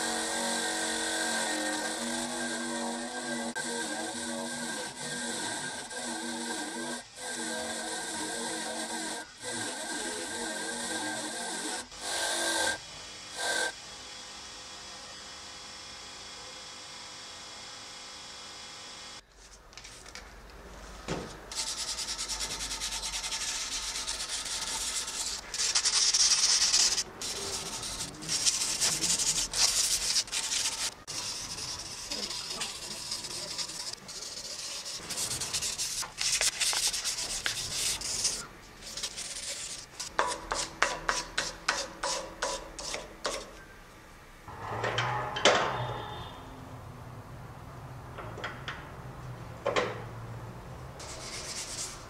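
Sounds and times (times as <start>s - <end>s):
sandpaper rubbing on metal: 21.5s - 43.5s, 51.0s - 52.0s.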